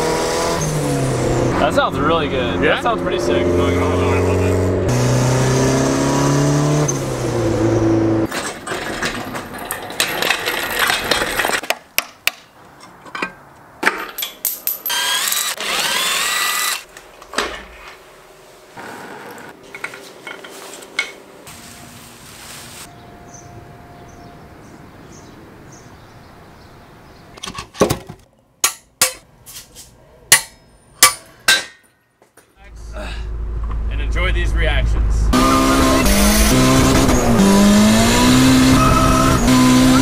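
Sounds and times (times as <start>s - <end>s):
power tool whirring: 14.8s - 16.9s, 18.8s - 19.6s
car engine running: 32.7s - 40.0s.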